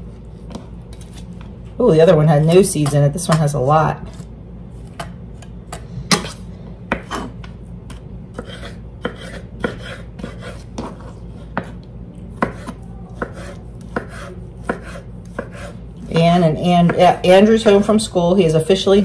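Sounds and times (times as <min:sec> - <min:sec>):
knife chopping on wooden board: 0:06.1 - 0:07.3, 0:08.4 - 0:11.8, 0:12.4 - 0:17.8.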